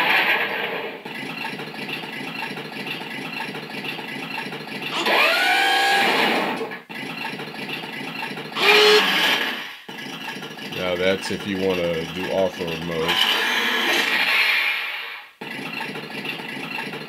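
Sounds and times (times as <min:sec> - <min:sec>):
toy car motors whirring: 0:08.6 - 0:14.5.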